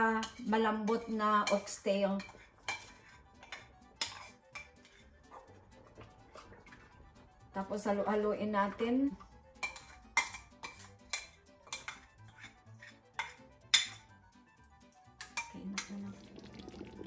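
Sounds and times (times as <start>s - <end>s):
spoon clinking against a bowl: 0.2s - 5.1s, 9.6s - 12.6s, 13.2s - 14.1s, 15.2s - 16.0s.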